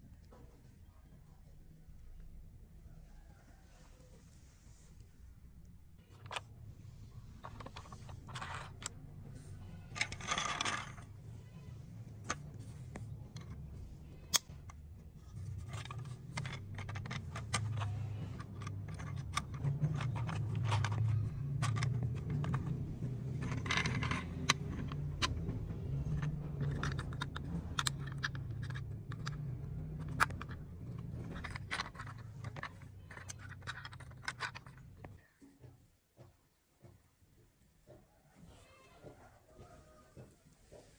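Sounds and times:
low steady rumble: 0.0s - 35.2s
plastic toy train clicks and rattles: 6.0s - 6.5s, 7.2s - 11.2s, 12.2s - 35.2s.

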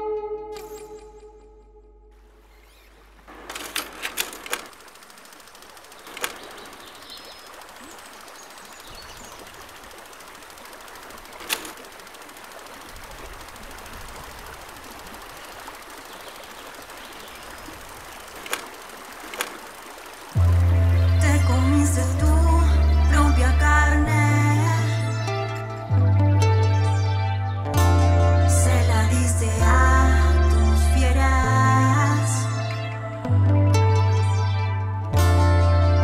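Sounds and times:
river water flowing: 2.2s - 27.4s
faint bird chirp: 2.4s - 3.3s, 5.3s - 10.2s, 15.3s - 17.9s
sharp clicks: 2.5s - 22.4s.

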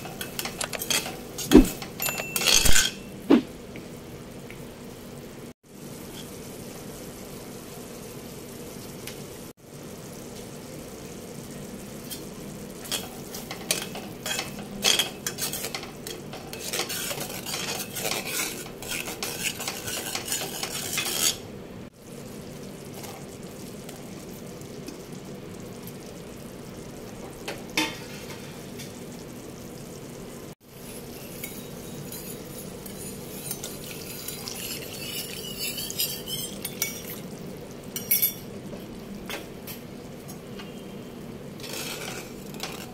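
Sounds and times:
utensil clinking against pan: 0.0s - 3.1s
sauce sizzling: 3.0s - 42.9s
spatula scraping in wok: 12.9s - 21.5s, 30.7s - 37.3s, 41.5s - 42.9s.

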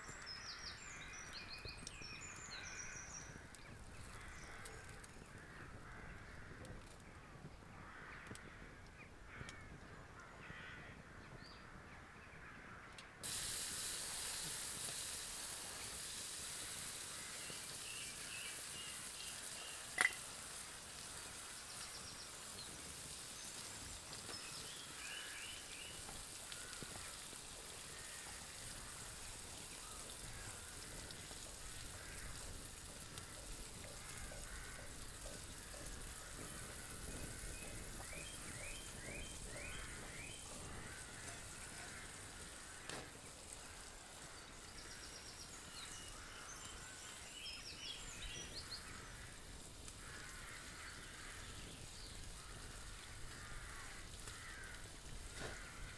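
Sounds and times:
birds calling: 0.0s - 55.9s
bacon sizzling: 13.2s - 55.9s.

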